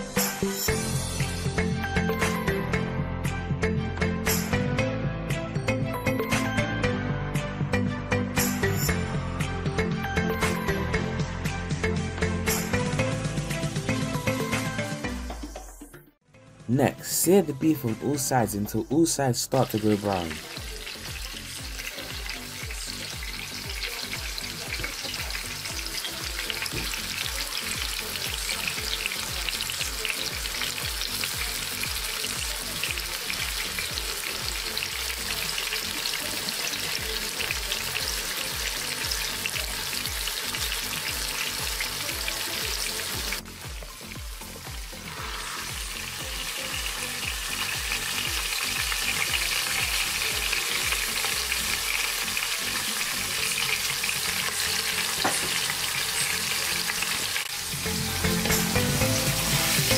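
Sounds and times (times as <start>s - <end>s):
meat sizzling in hot oil: 19.5s - 59.9s.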